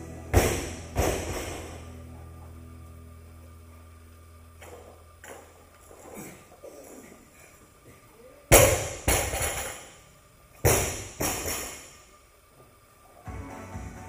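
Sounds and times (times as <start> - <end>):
barbell dropped on floor: 0.3 - 1.8, 8.5 - 10.0.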